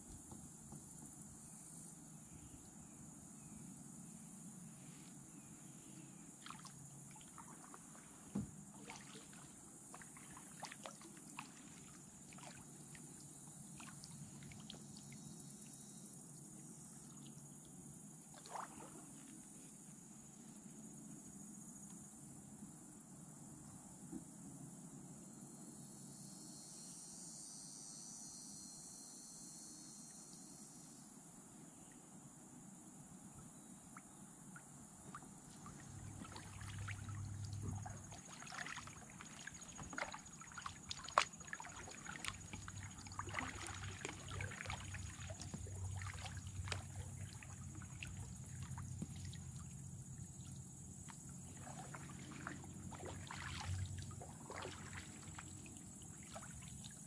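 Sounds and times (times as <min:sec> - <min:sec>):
kayak paddles stroking water: 0:06.4 - 0:15.1, 0:18.3 - 0:19.4, 0:35.1 - 0:57.0
water dripping off paddles: 0:35.1 - 0:49.8, 0:50.5 - 0:56.9.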